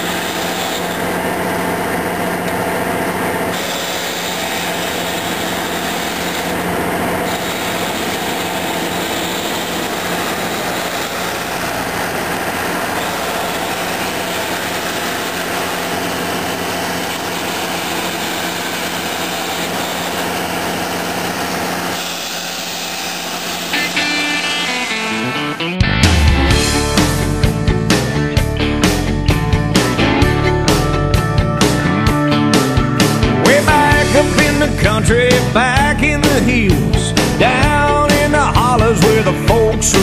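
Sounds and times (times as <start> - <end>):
tractor diesel engine running: 0.0 - 40.0.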